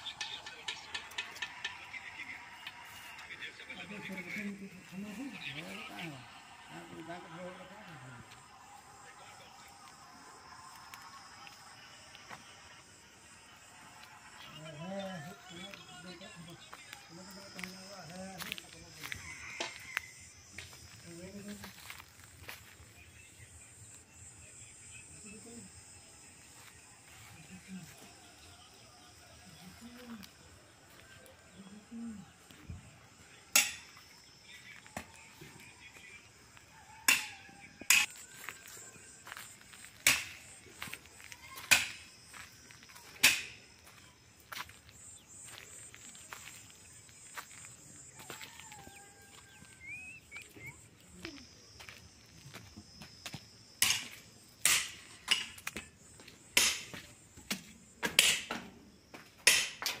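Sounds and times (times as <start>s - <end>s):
insect drone: 0.0s - 60.0s
footsteps crunching on leaves: 16.7s - 23.3s, 38.0s - 53.5s.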